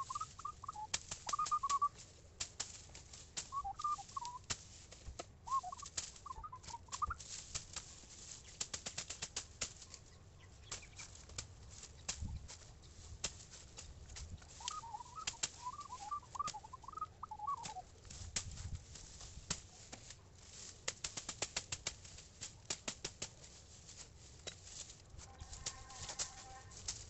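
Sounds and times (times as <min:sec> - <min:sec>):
bird chirping: 0:00.0 - 0:01.9, 0:03.4 - 0:04.4, 0:05.5 - 0:07.3, 0:09.8 - 0:11.2, 0:14.4 - 0:17.9
machete chopping grass and cane: 0:00.9 - 0:03.6, 0:04.2 - 0:10.0, 0:10.7 - 0:14.6, 0:17.6 - 0:24.9.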